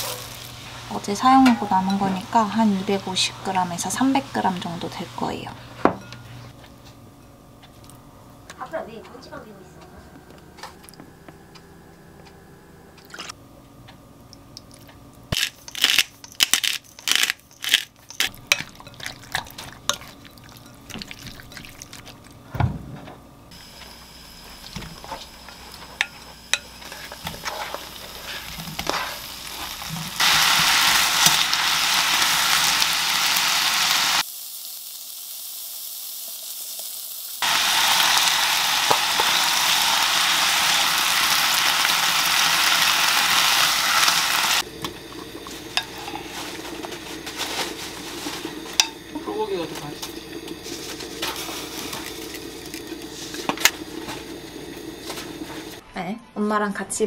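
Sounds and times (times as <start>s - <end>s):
meat sizzling in a frying pan: 23.6s - 44.7s.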